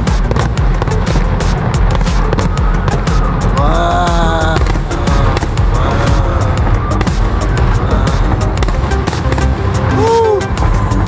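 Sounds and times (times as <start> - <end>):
low rumble: 0.0 - 10.0
fireworks crackling and banging: 0.0 - 11.0
held pitched tone: 2.2 - 9.0.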